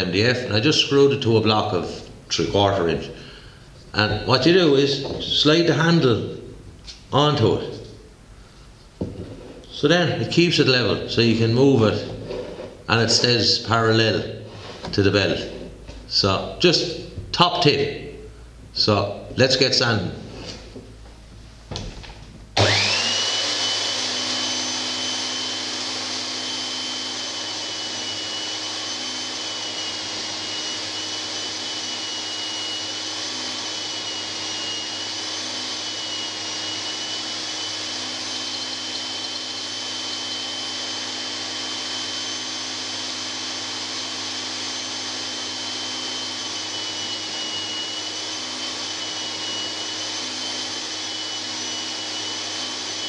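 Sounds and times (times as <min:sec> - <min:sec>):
belt sander whine: 0:22.6 - 0:53.0.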